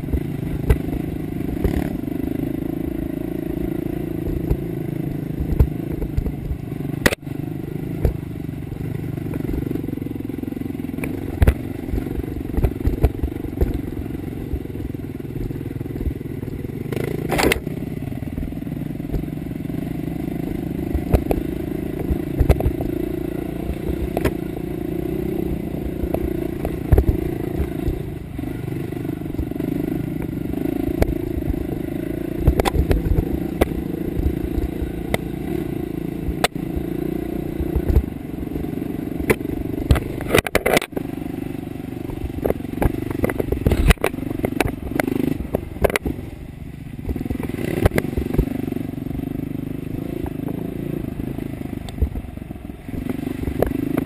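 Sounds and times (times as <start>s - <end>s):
knocks and clatter over rocks: 0.0s - 1.9s, 5.4s - 7.2s, 11.0s - 14.8s, 16.9s - 17.7s, 20.5s - 24.4s, 25.8s - 28.1s, 32.4s - 35.3s, 37.6s - 38.1s, 39.2s - 41.1s, 42.0s - 46.2s, 47.0s - 48.6s
dirt bike engine running: 0.0s - 54.0s.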